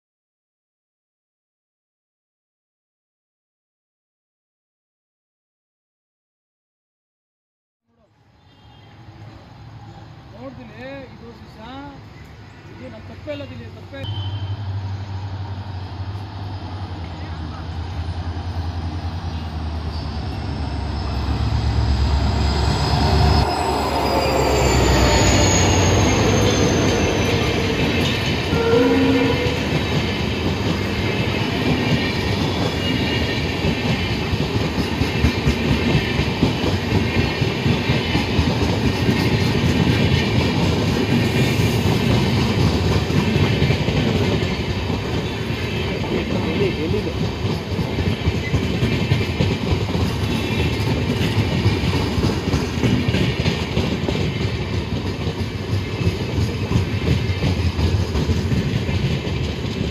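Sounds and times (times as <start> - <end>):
diesel locomotive engine rumbling: 8.4 - 59.9
train wheels clattering over rail joints: 29.7 - 59.9.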